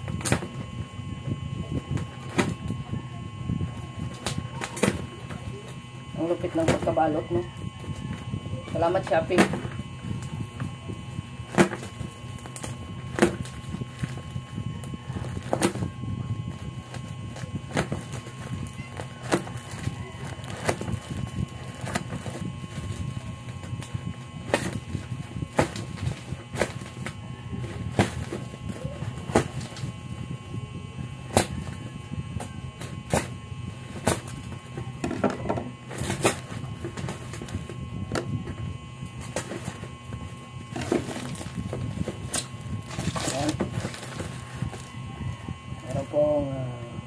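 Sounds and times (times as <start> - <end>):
steady low hum: 0.0 - 47.0
plastic packaging crinkling: 11.6 - 30.0, 35.8 - 45.3
bubble wrap snapping: 16.5 - 29.9, 40.7 - 45.0.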